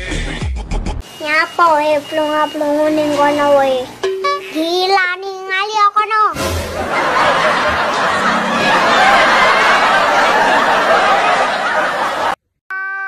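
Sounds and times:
steady electronic tone: 1.0 - 4.7
audience laughter: 6.4 - 12.4.

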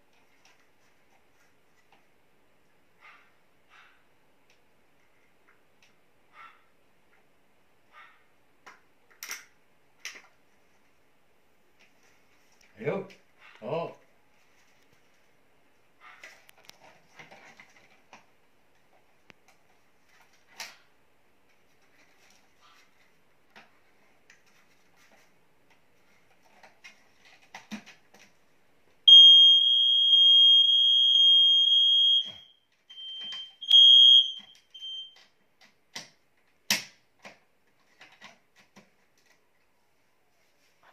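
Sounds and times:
smoke alarm tone: 29.1 - 35.2.

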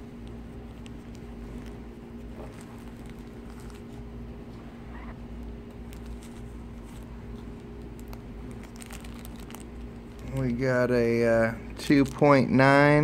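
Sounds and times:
pouches rustling: 0.0 - 10.7
low background hum: 0.0 - 13.0.

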